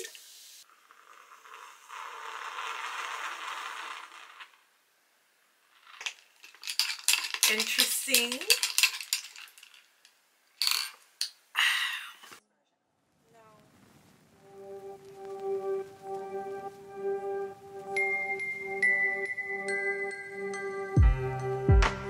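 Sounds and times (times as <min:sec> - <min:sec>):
hard objects clinking and knocking: 0:05.9 - 0:11.4.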